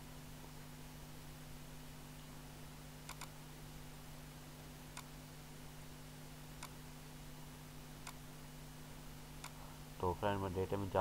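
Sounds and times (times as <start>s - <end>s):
low steady hum and hiss: 0.0s - 11.0s
computer mouse clicks: 3.0s - 3.4s, 4.9s - 5.1s, 9.4s - 9.6s.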